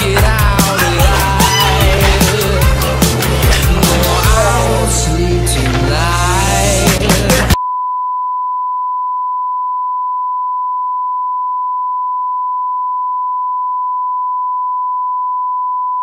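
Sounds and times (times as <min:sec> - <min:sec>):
music: 0:00.0 - 0:07.6.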